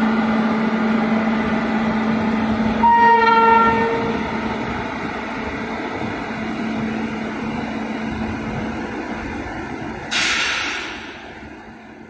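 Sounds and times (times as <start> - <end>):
diesel locomotive rumbling: 0.0 - 12.0
air brake hiss: 10.1 - 11.4.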